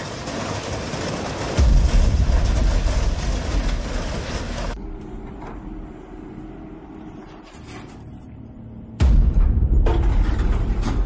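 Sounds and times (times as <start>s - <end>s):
freight train rumbling past: 0.0s - 6.9s
steady engine hum: 0.0s - 11.0s.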